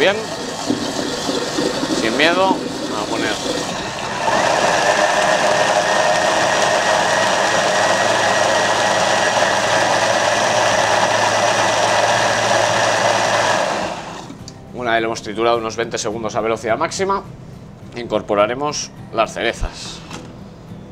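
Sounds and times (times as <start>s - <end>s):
blender whirring: 0.0s - 14.4s.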